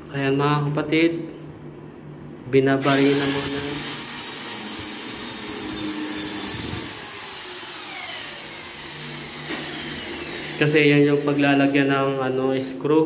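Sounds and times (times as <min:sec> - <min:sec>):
electric drill whine: 0:02.8 - 0:11.8.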